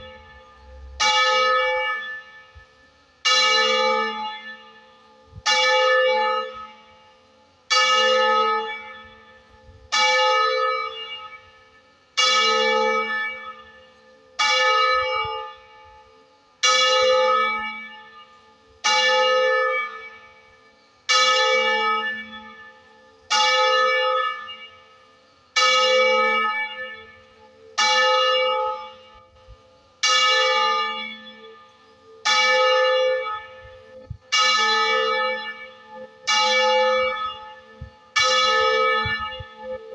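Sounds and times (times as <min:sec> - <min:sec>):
church bell tolling: 0:00.0 - 0:39.9.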